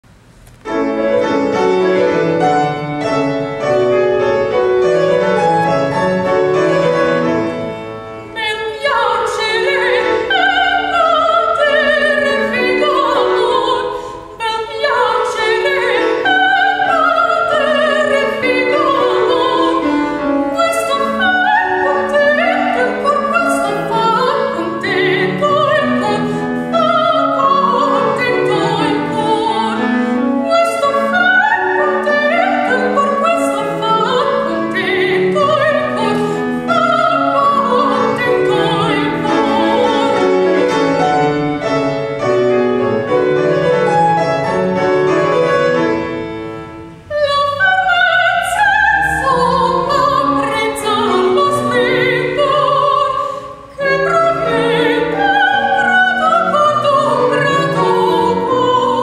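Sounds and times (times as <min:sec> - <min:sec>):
grand piano: 0:00.0 - 0:59.0
woman singing operatically: 0:08.2 - 0:41.0, 0:47.0 - 0:59.0.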